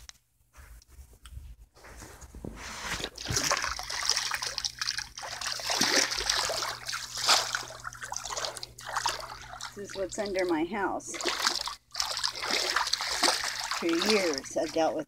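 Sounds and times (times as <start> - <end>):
floodwater splashing and trickling: 3.2 - 15.0.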